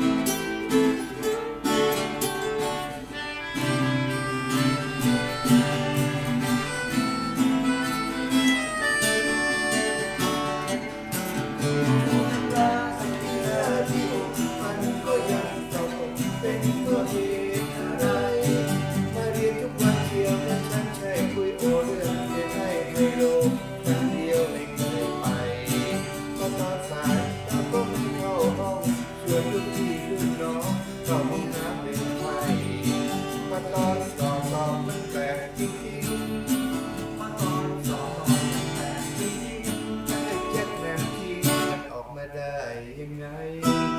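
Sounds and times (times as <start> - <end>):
melodica melody: 0.0 - 16.1
strummed acoustic guitars: 0.0 - 43.9.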